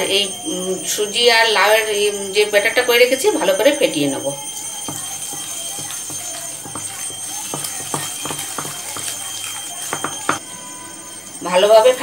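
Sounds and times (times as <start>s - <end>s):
batter beaten by hand in bowl: 4.8s - 10.4s.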